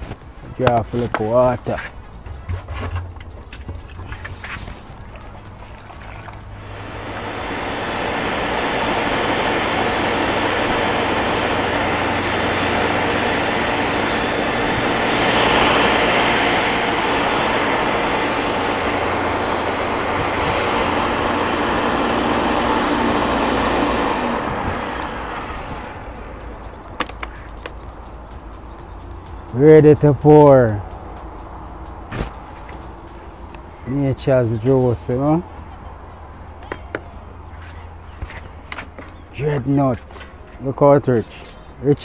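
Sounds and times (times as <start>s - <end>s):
electric blender running: 6.6s - 26.3s.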